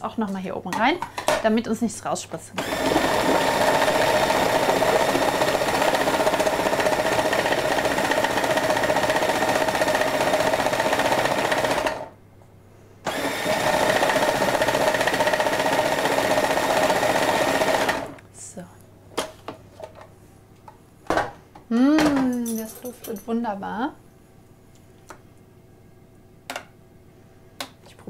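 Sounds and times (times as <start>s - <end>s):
food processor motor running: 2.6s - 12.1s, 13.1s - 18.2s.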